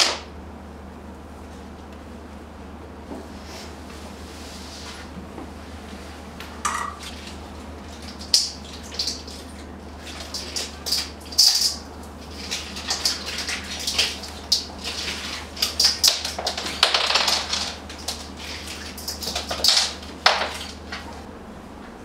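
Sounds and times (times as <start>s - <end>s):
hands splashing water in a bowl: 7.0s - 21.0s.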